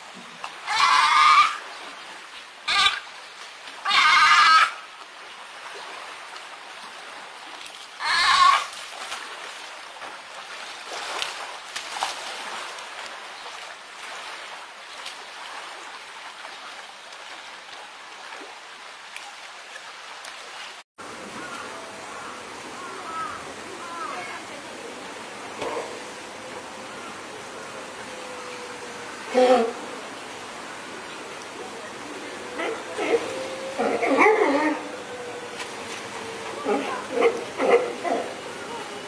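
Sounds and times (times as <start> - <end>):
running water: 0.0 - 39.0
sea lion pup calling: 0.6 - 1.6, 3.8 - 4.8, 8.0 - 8.7, 32.6 - 34.9.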